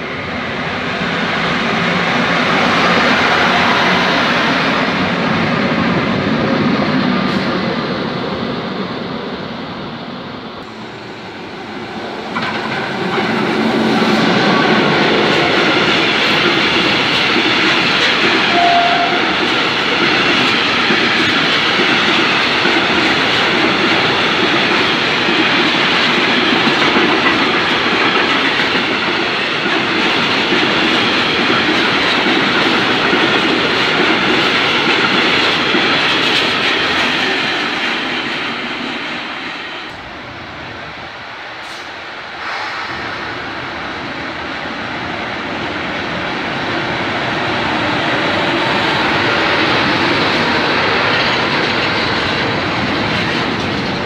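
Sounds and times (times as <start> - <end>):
train wheels clattering on rails: 10.6 - 40.4, 41.5 - 54.0.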